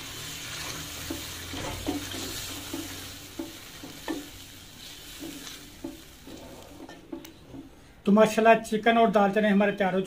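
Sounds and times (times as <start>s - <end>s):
frying hiss: 0.0s - 7.8s
wooden spoon scraping a pan: 0.5s - 7.7s.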